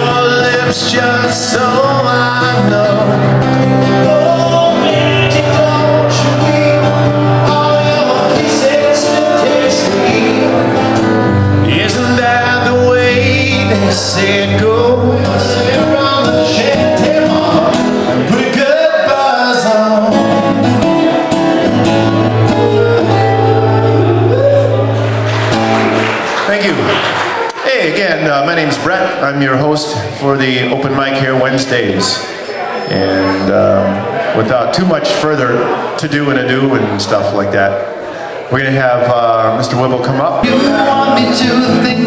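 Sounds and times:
man singing: 0.0 - 21.3, 40.3 - 42.0
acoustic guitar: 0.0 - 42.0.

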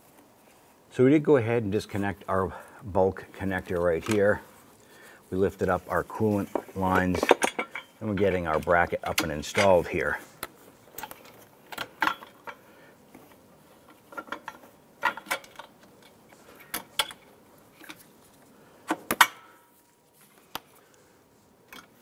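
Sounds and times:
clicks and knocks of hard parts: 6.4 - 12.6, 13.8 - 18.0, 18.8 - 19.7.

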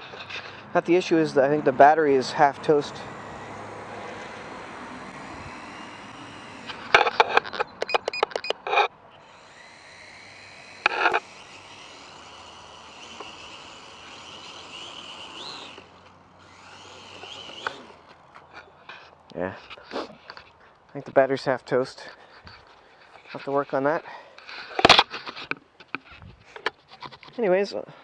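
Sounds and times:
toy drone motors whining: 0.0 - 20.6.

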